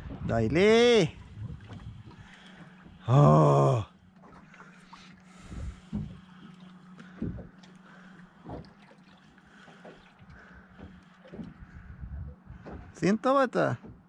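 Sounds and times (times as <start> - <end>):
dull low thumps: 0.0 - 3.2, 5.4 - 6.4, 10.4 - 13.1
steady low hum: 0.0 - 14.0
water lapping against boat hull: 0.0 - 14.0.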